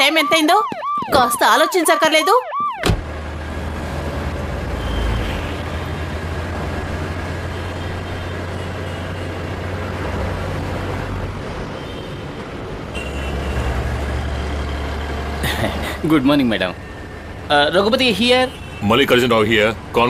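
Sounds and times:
road noise: 0.0 - 20.0
bus engine drone: 2.6 - 11.6, 12.4 - 18.0.

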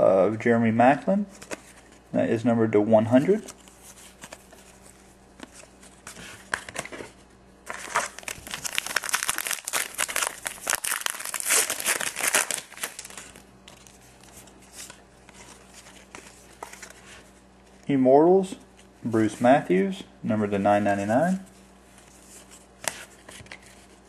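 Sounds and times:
cards rustling: 1.3 - 2.0, 3.1 - 17.8
foil wrapper crackling: 7.7 - 14.0.

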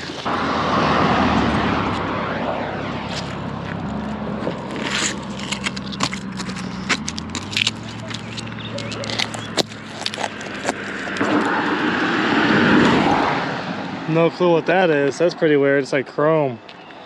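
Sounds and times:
loud rushing noise: 0.0 - 5.7, 10.4 - 15.0
low vehicle hum: 0.0 - 15.6
magnet scraping metal railing: 3.1 - 11.9.

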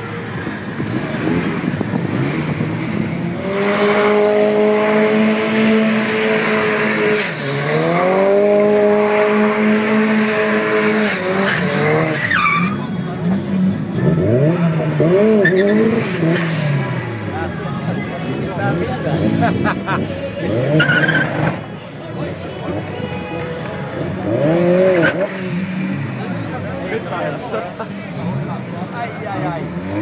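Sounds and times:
car engine revving: 0.0 - 30.0
tyres screeching: 10.8 - 13.0, 20.5 - 21.7.

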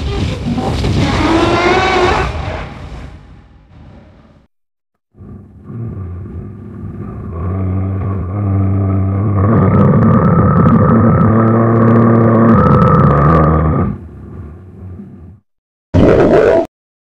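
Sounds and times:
low creature growl: 5.1 - 15.4.

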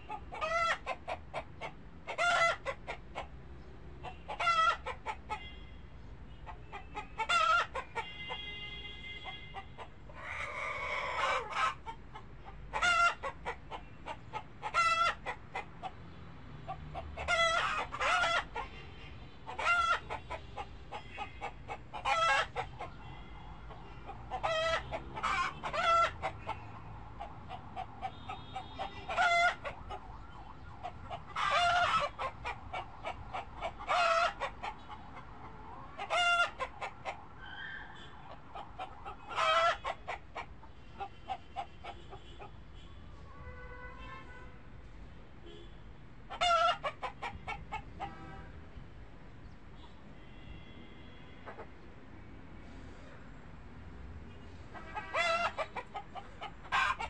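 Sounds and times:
chickens clucking: 0.0 - 5.5, 6.4 - 8.2, 9.2 - 18.8, 19.4 - 42.6, 46.3 - 48.3, 51.4 - 51.8, 54.7 - 57.0.

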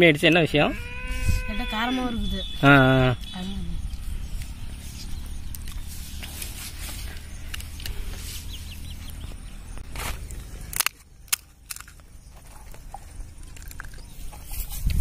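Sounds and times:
low steady rumble: 0.6 - 15.0
crunchy shells cracking: 10.1 - 14.5.

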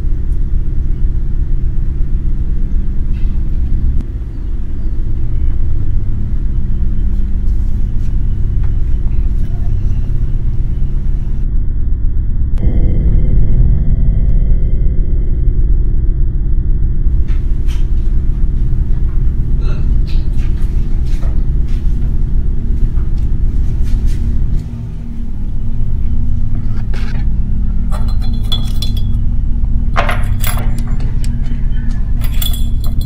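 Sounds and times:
loud low drone: 0.0 - 33.0
pencils clinking against mug: 27.9 - 29.2, 32.2 - 33.0.

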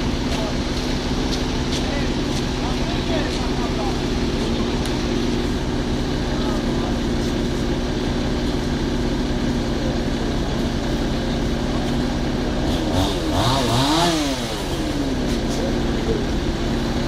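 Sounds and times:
fire engine motor running: 0.0 - 17.0
motor revving: 11.9 - 17.0.

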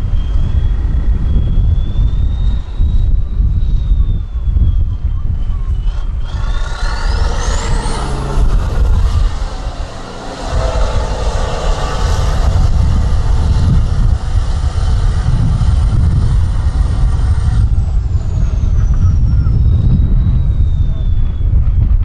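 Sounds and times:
truck diesel engine under load: 5.8 - 19.0.

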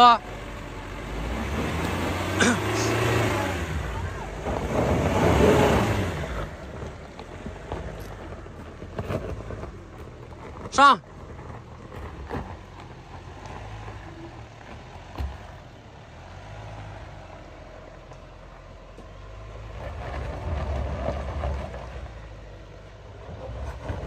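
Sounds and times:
off-road vehicle engine revving: 0.0 - 24.0.

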